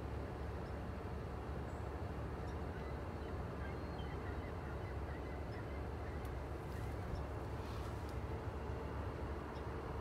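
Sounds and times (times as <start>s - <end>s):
low outdoor rumble: 0.0s - 10.0s.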